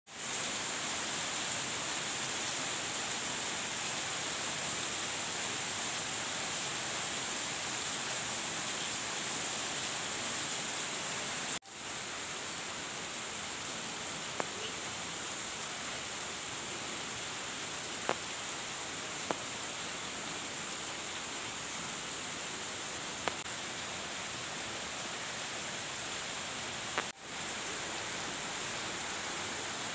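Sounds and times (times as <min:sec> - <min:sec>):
heavy rain on palm fronds: 0:00.1 - 0:29.9.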